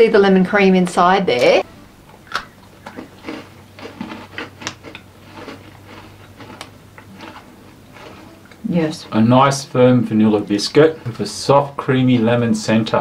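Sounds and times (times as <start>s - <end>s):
people crunching biscuits: 2.2s - 11.5s.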